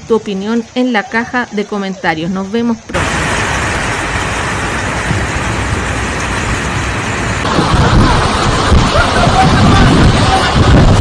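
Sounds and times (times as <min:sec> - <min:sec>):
floodwater rushing: 0:02.8 - 0:11.0.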